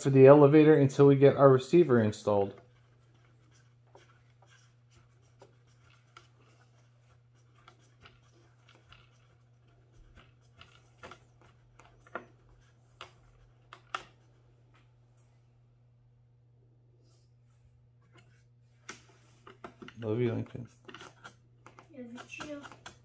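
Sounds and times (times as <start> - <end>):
low electrical hum: 0.0 - 23.0
screwdriver ticking and scraping: 2.3 - 14.2, 19.4 - 23.0.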